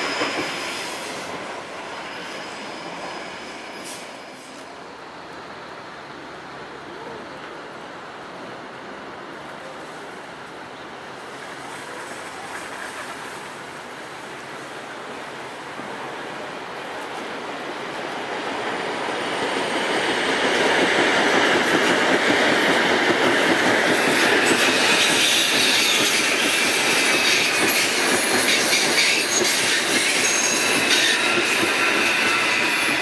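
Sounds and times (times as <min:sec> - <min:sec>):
high wheel squeals: 0:00.0 - 0:04.6, 0:24.1 - 0:33.0
electric train rumbling past: 0:00.0 - 0:09.4, 0:11.0 - 0:33.0.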